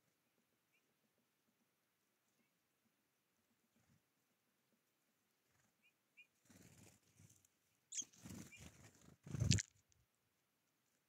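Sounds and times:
wings fluttering: 5.4 - 9.8
high bird calls: 7.9 - 8.8.

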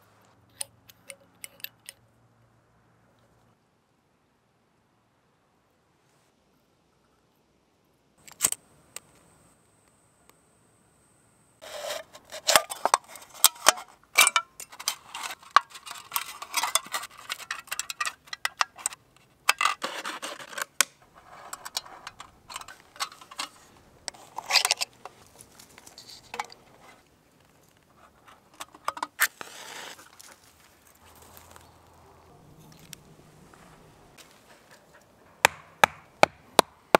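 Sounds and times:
metal parts clicking and scraping: 0.5 - 2.0, 11.6 - 27.0.

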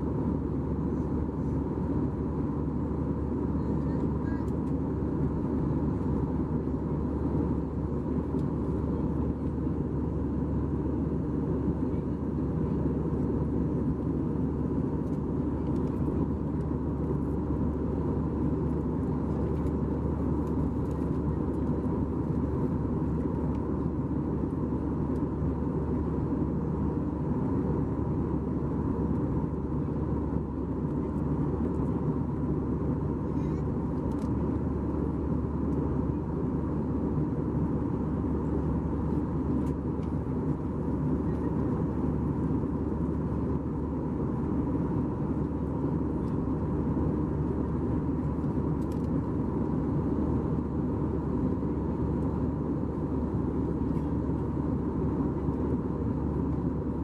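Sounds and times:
aircraft cabin roar: 0.0 - 57.0.

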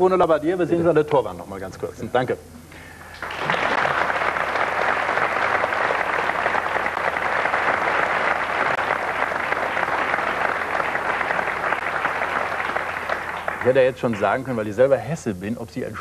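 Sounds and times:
audience applauding: 3.1 - 15.0.

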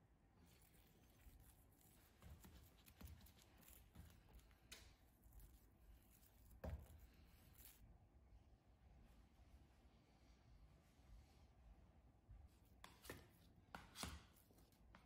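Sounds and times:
hands patting dough: 0.5 - 7.8.

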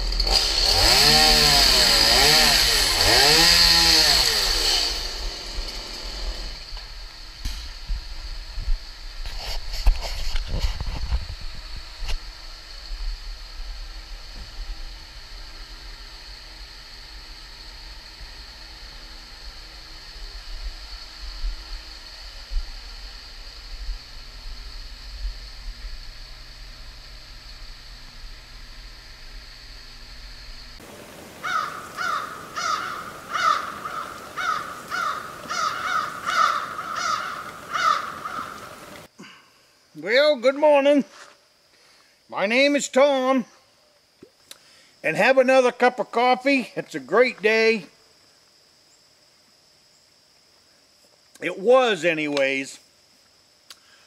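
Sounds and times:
background hiss: 1.0 - 54.0
crow cawing: 31.4 - 39.0.

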